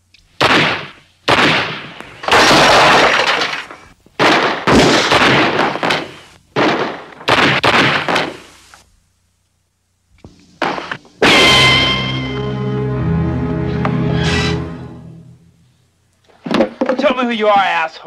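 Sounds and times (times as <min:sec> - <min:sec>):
gunshots: 0:00.4 - 0:08.5, 0:10.6 - 0:12.1.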